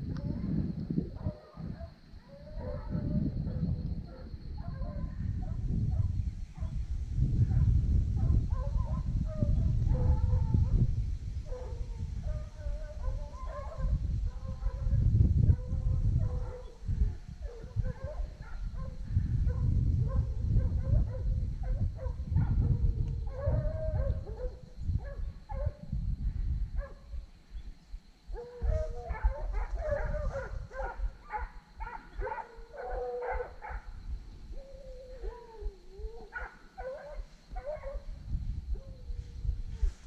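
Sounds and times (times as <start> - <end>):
low rumble on microphone: 0.0 - 31.2, 37.5 - 40.0
dogs barking and baying: 1.2 - 6.8, 8.2 - 10.8, 11.5 - 14.9, 15.5 - 16.8, 17.4 - 25.8, 28.3 - 33.9, 34.9 - 38.1.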